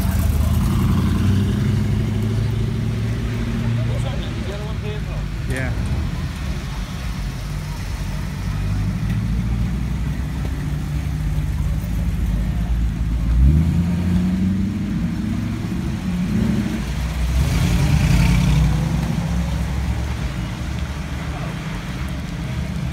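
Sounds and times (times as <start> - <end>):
engine revving: 0.0 - 3.9, 13.2 - 19.5
car engines rumbling: 0.0 - 22.9
tyres hissing on wet road: 0.0 - 22.9.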